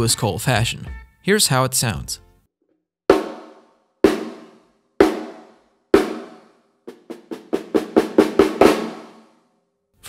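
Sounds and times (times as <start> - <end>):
snare drum strokes: 3.1 - 9.3.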